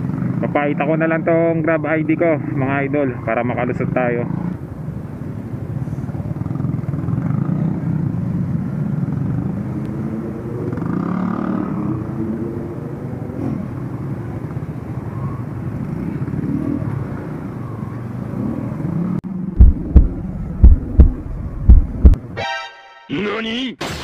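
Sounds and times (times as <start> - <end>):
motorcycle engine running at low speed: 0.0 - 0.8, 4.3 - 22.2
motorcycles and cars idling: 0.0 - 22.2.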